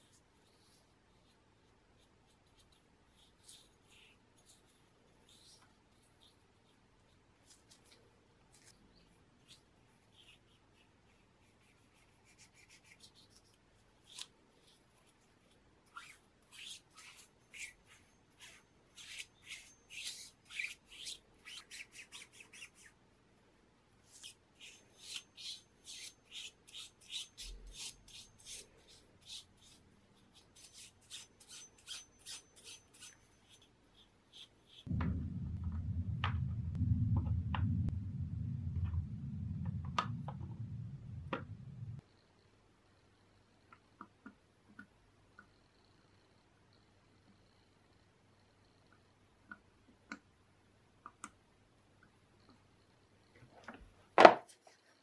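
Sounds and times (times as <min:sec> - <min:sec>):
low rumble with clicks: 0:34.9 - 0:42.0.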